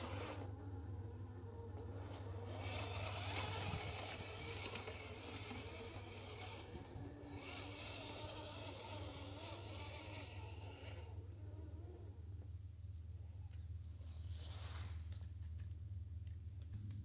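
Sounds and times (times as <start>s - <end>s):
electric motor and gears whining: 0.0s - 12.7s
low steady rumble: 0.0s - 17.0s.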